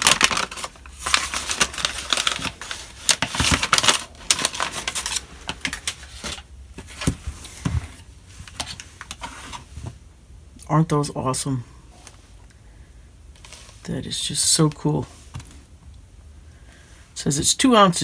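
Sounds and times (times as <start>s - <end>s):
paper crinkling and rustling: 0.0s - 10.0s.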